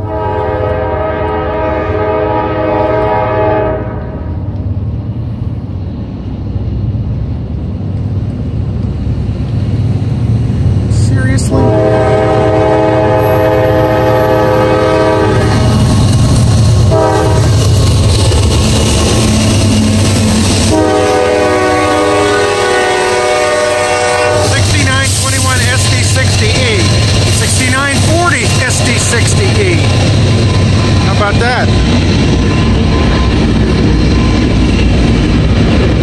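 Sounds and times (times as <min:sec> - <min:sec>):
locomotive air horn blasts: 0:00.0 - 0:04.3, 0:11.5 - 0:15.8, 0:16.9 - 0:17.6, 0:20.6 - 0:25.5
locomotive rumble: 0:00.0 - 0:36.0.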